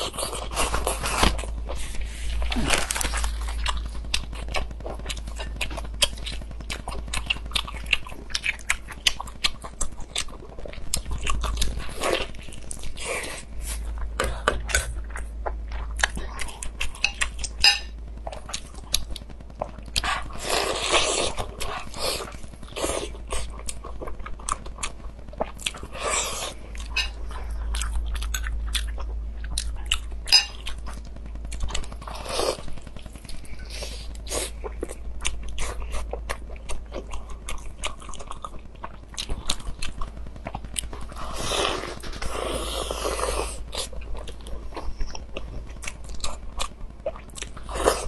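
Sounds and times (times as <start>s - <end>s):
person biting and chewing food: 0.0s - 48.0s.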